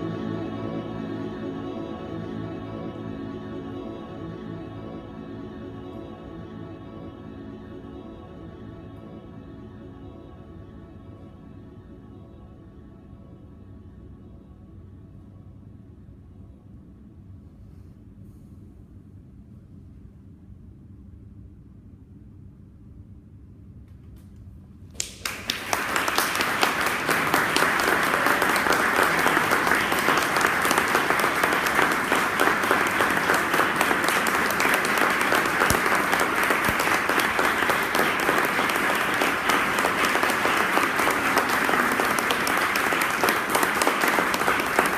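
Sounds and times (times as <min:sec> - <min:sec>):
audience applauding: 0:25.0 - 0:44.9.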